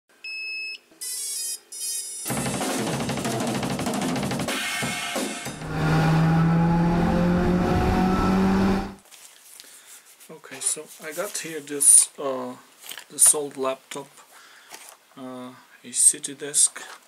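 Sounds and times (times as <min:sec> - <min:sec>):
drums and cymbals: 0:02.3 - 0:05.7.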